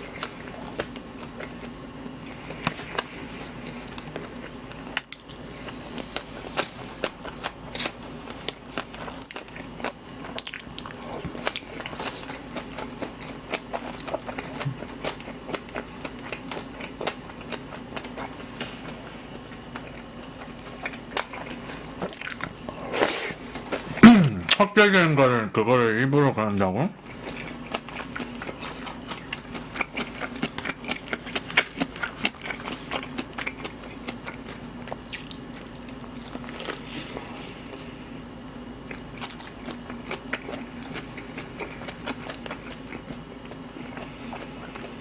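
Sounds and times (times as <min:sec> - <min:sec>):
low steady hum: 0:00.0 - 0:45.0
wet chewing and lip smacks: 0:27.0 - 0:37.3.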